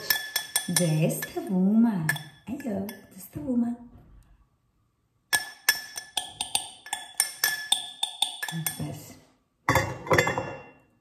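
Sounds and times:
dishes and glassware clinking: 0:00.0 - 0:03.1, 0:05.3 - 0:11.0.

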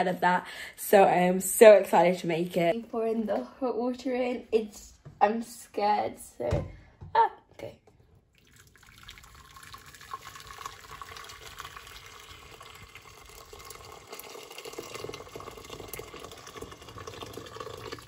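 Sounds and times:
water pouring into metal pot: 0:08.3 - 0:18.0.

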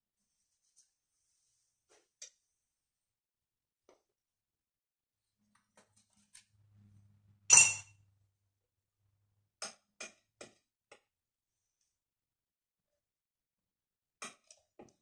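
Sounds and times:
sharp ringing clink: 0:07.5 - 0:07.9.

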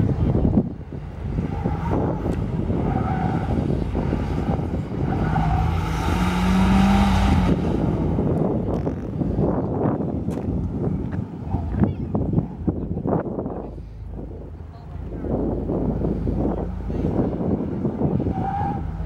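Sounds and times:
car engine revving hard: 0:01.4 - 0:08.6.

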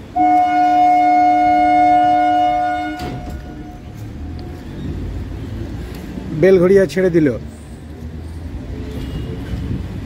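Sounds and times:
train horn blast: 0:00.0 - 0:04.0
low rumble of train moving: 0:00.0 - 0:10.0.

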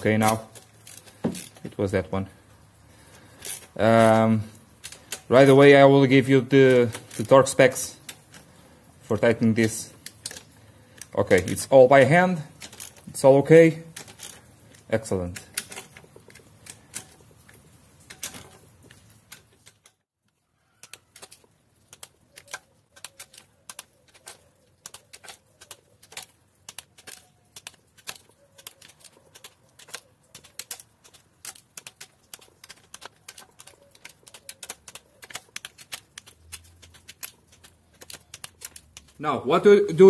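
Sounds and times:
ratchet wrench clicking: 0:03.4 - 0:05.8, 0:11.0 - 0:13.2, 0:13.8 - 0:17.2.

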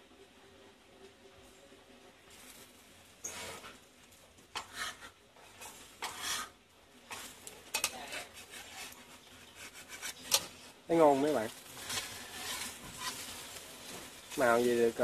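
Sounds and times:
sizzling in hot oil: 0:02.2 - 0:15.0
spatula scraping a pan: 0:03.2 - 0:03.8, 0:04.5 - 0:15.0.

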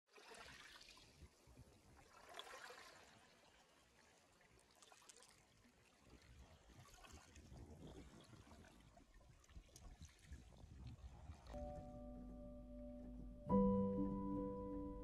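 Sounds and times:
waves lapping on pebbles: 0:00.1 - 0:11.5.

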